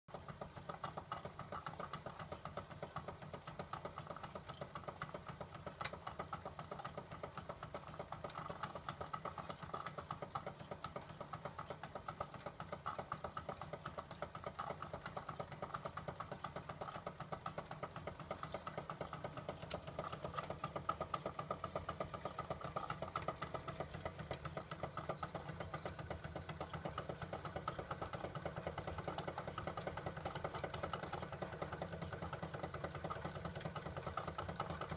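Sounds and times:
light mechanical rattle: 0.1s - 34.9s
toy steam engine running: 0.1s - 34.9s.

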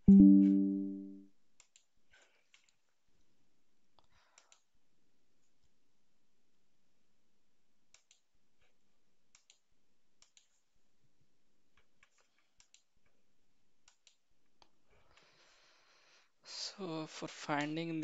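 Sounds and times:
faint computer mouse clicks: 7.9s - 8.2s.

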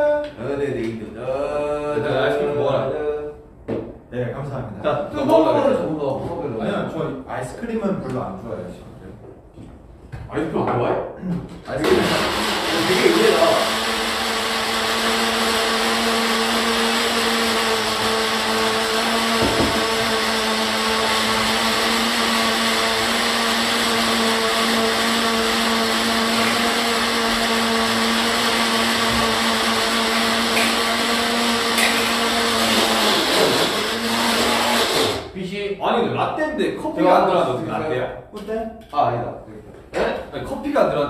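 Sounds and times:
blender running: 11.8s - 35.4s.

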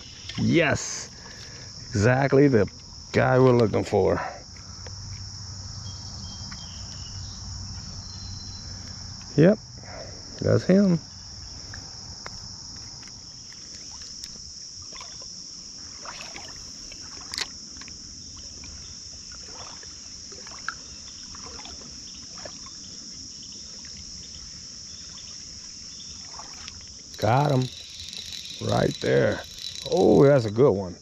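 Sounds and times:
crickets chirping: 0.0s - 31.0s
light splashes: 13.7s - 17.9s, 19.3s - 22.8s, 26.1s - 30.6s
creek water flowing: 25.3s - 30.6s.

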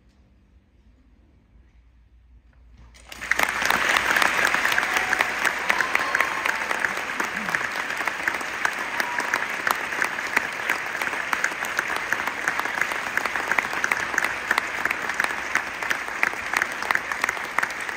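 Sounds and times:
audience applauding: 3.0s - 17.9s.

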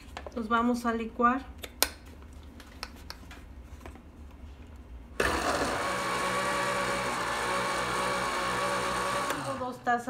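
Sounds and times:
blender motor running: 5.2s - 9.9s.

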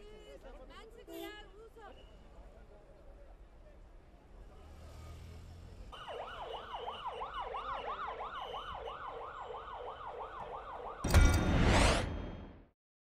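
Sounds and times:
ambulance siren wailing: 6.0s - 11.1s
loud whoosh: 11.1s - 12.7s.

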